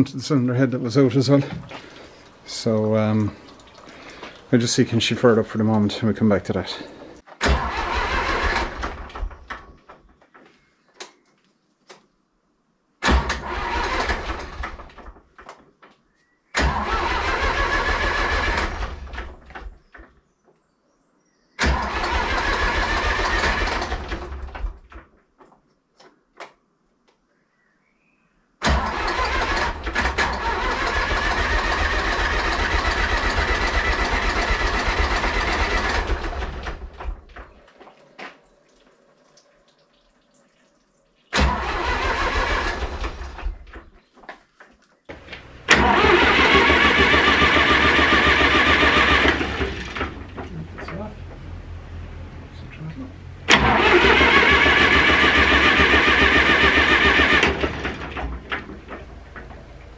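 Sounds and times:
diesel engine cranking on starter: 0.6 - 9.7, 13.0 - 15.2, 16.6 - 19.8, 21.6 - 25.0, 28.6 - 37.6, 41.3 - 43.9, 45.1 - 59.9.

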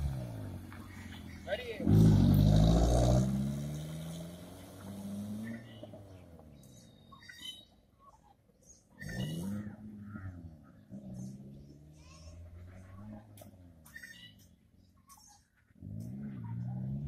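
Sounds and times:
car engine revving: 0.0 - 6.9, 15.7 - 17.0
birds chirping faintly: 4.0 - 15.8.

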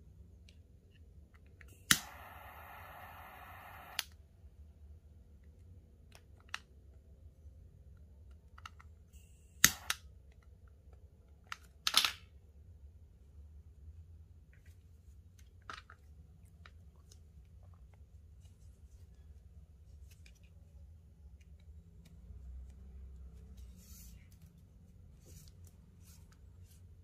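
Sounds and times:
torch lighter hissing: 1.9 - 4.0
lighter clicks: 1.9 - 4.1.

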